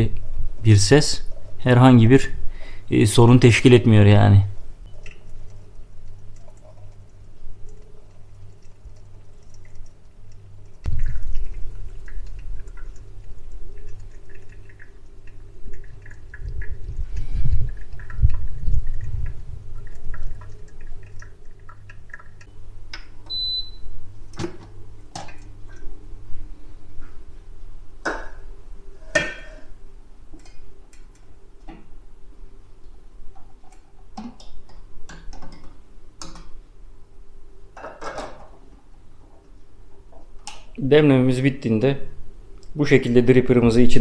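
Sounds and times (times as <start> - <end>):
coffee dripping into carafe: 4.9 - 23.8.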